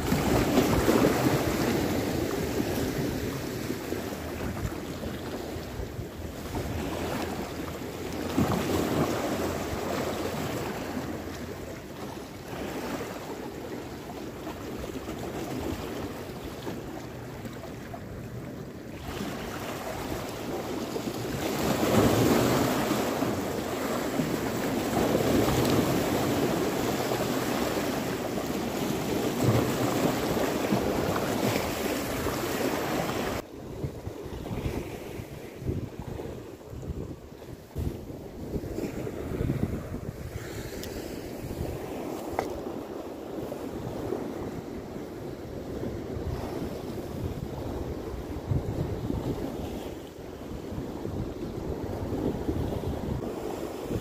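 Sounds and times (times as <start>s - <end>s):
waves breaking on rocks: 0.0s - 17.2s, 19.0s - 33.4s
wind buffeting microphone: 19.0s - 54.0s.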